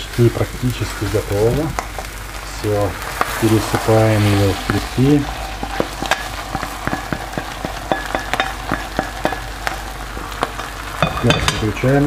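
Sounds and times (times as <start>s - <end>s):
food sizzling in a pan: 0.0s - 12.0s
utensil scraping a pan: 3.0s - 11.8s.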